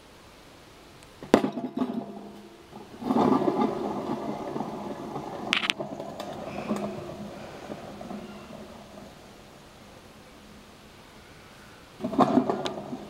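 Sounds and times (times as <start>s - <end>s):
whirring rattle of spinning metal: 1.5s - 11.0s.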